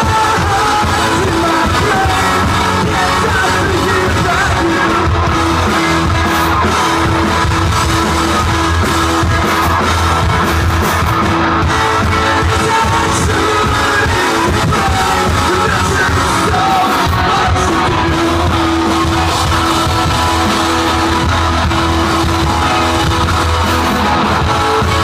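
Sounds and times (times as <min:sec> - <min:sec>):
man singing lead vocal: 0:00.0 - 0:06.5, 0:11.7 - 0:21.3
rock band playing: 0:00.0 - 0:25.0.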